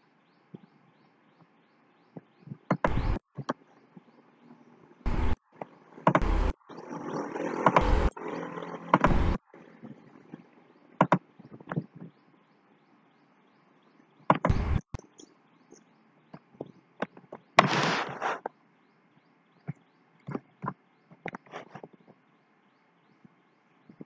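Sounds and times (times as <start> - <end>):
clicks and knocks: 14.3 - 15.0
rustling burst: 17.6 - 18.4.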